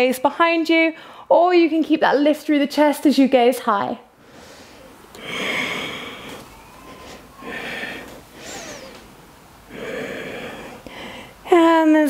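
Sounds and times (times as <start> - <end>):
woman breathing deeply: 4.2 - 11.5.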